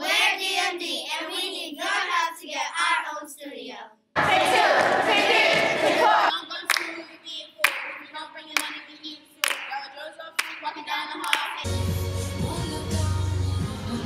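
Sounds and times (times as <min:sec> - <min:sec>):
girls singing together: 0:00.0 - 0:03.6, 0:04.2 - 0:11.7
unison hand claps: 0:06.7 - 0:07.0, 0:07.6 - 0:11.7.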